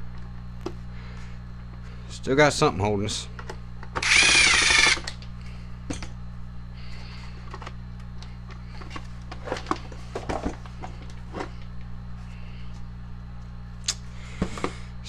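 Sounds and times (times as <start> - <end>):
steady low hum: 0.0 - 15.0
drill set down: 4.0 - 5.1.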